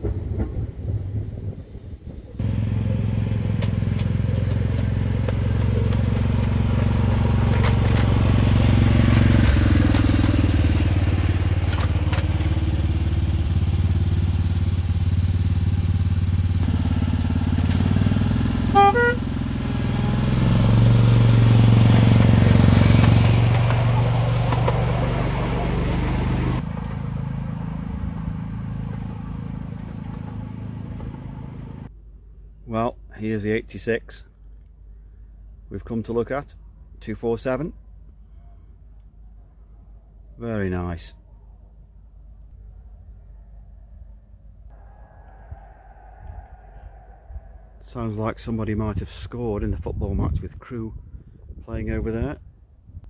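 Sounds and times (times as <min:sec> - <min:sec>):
engine humming: 0:00.0 - 0:32.6.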